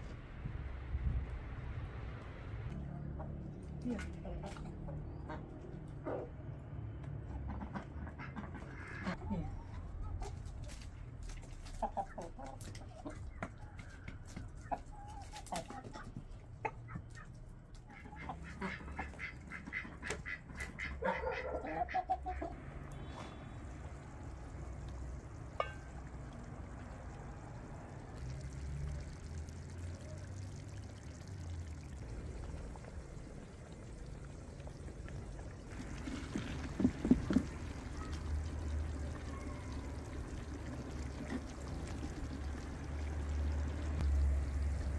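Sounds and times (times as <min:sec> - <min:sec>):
chickens clucking: 0:04.0 - 0:06.3, 0:07.2 - 0:10.8, 0:11.6 - 0:23.3
metal ladle knocking on pot: 0:25.5 - 0:26.0.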